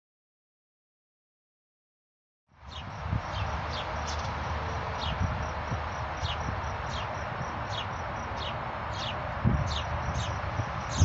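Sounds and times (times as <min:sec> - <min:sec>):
small birds chirping: 0:02.6 - 0:11.0
high pulsing insect trill: 0:02.7 - 0:11.0.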